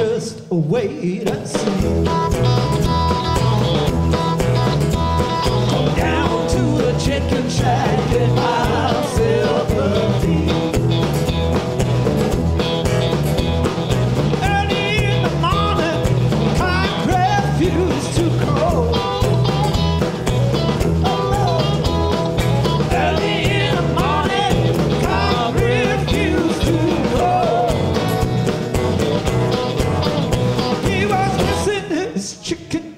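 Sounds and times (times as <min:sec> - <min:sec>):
man singing lead: 0:00.0 - 0:02.1, 0:05.8 - 0:11.0, 0:14.3 - 0:19.2, 0:21.0 - 0:22.0, 0:22.8 - 0:28.3, 0:30.6 - 0:32.9
bass guitar: 0:00.0 - 0:32.1
acoustic and electric guitars: 0:00.0 - 0:32.5
drum kit beat: 0:01.3 - 0:31.9.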